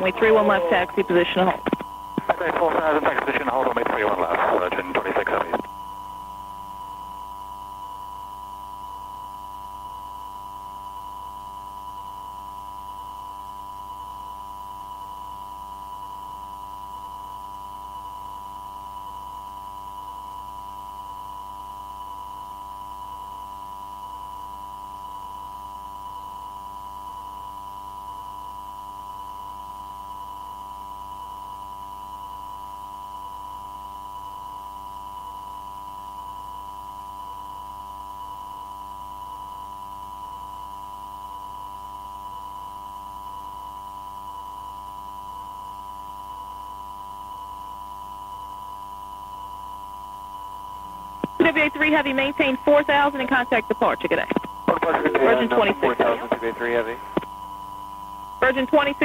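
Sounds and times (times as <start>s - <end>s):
low hum: 0.0s - 7.2s, 50.7s - 59.0s.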